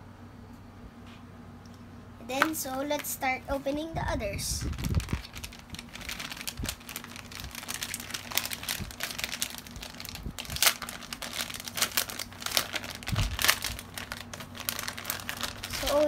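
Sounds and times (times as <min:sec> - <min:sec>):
plastic bag crinkling: 0:04.4 - 0:16.0.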